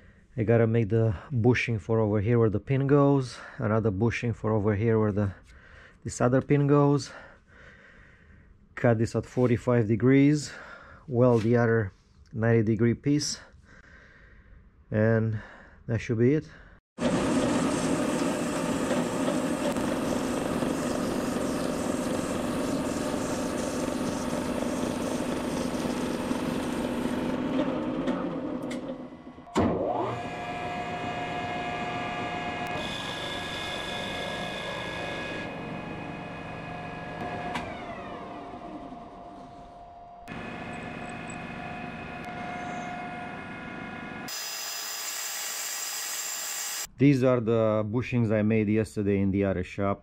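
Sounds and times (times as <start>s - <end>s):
bandsaw cutting metal: 17.0s - 28.4s, 40.3s - 46.9s
metal lathe whining: 17.0s - 28.9s, 29.8s - 39.3s, 40.3s - 46.9s.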